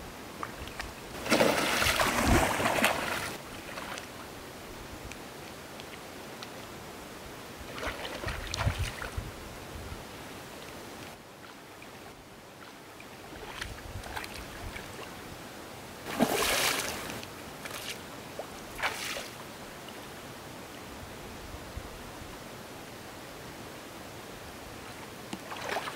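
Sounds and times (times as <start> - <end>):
steady background hiss: 0.0 - 25.9
water splashing: 0.7 - 4.1, 16.1 - 19.4, 25.4 - 25.9.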